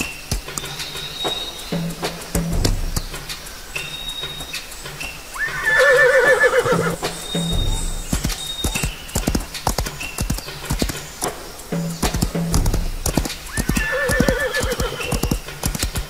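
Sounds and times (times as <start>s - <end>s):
background music: 0.0s - 16.0s
clip-clop hoofbeats: 0.0s - 16.0s
horse whinnying: 5.4s - 7.1s, 13.5s - 15.4s.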